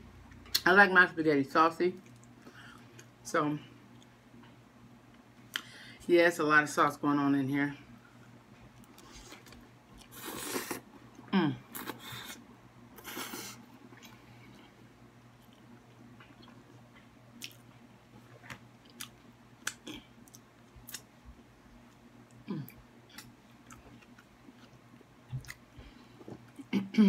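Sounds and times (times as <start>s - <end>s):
quiet chewing: 13.0s - 21.1s, 21.8s - 26.7s.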